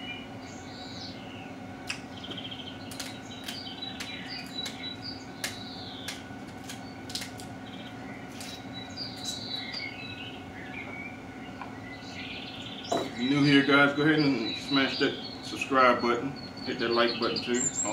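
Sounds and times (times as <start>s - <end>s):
birds chirping and singing: 0.0s - 17.9s
steady low hum: 0.0s - 17.9s
scissors snipping crab shells: 2.9s - 7.5s.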